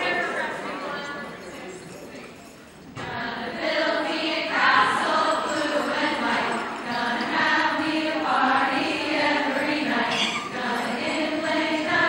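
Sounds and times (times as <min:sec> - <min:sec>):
group singing a chant: 0:03.0 - 0:12.0.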